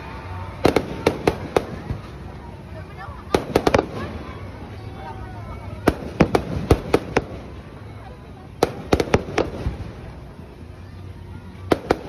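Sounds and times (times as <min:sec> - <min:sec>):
fireworks bangs: 0:00.0 - 0:10.5, 0:11.6 - 0:12.0.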